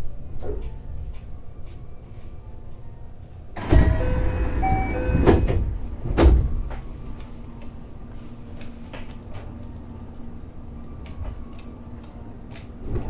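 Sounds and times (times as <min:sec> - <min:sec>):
train doors thudding: 0:03.6 - 0:07.0.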